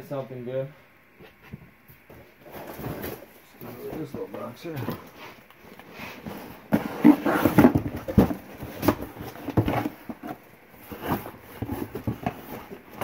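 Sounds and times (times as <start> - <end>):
items knocking and clattering: 6.2 - 13.0.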